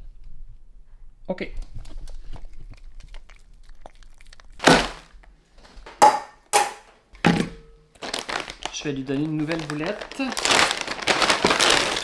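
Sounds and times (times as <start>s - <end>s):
dog crunching hard food: 1.6s - 5.4s, 8.0s - 12.0s.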